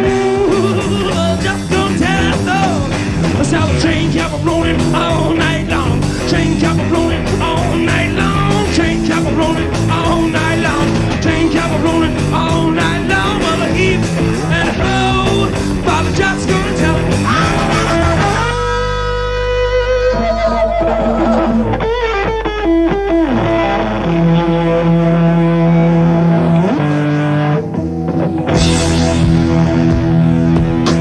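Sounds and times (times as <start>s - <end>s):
bass: 0.0s - 31.0s
distorted electric guitars: 0.0s - 31.0s
drums: 0.0s - 31.0s.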